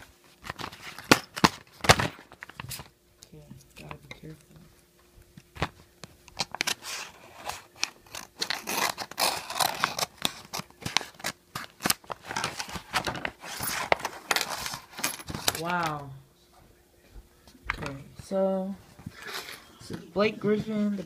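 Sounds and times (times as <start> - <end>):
paper envelope tearing: 6.4 - 14.9
envelope rustling: 6.4 - 15.9.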